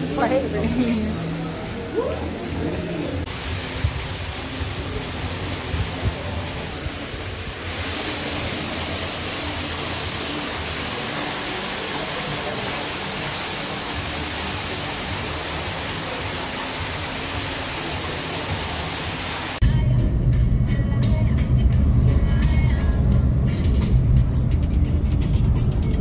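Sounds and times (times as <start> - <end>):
fountain water splashing: 0.0 - 19.6.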